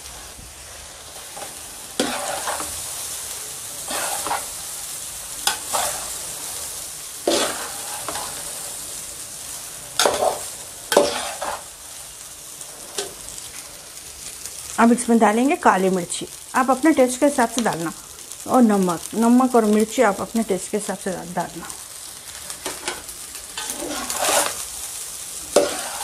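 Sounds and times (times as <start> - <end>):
rice sizzling in a pan: 0.0 - 26.0
spatula scraping a pan: 1.2 - 3.1, 3.8 - 8.8, 10.0 - 11.7, 22.5 - 26.0.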